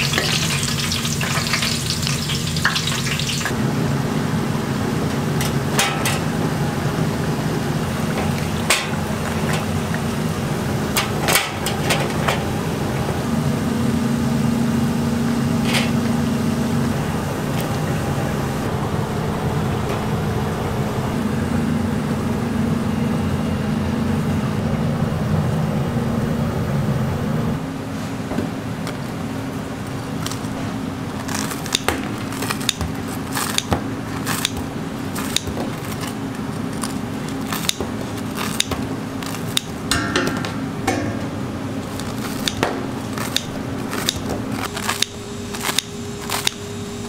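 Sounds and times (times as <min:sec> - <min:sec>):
dough deep-frying sizzle: 0:00.0 - 0:03.6
low kitchen machine hum: 0:00.0 - 0:47.0.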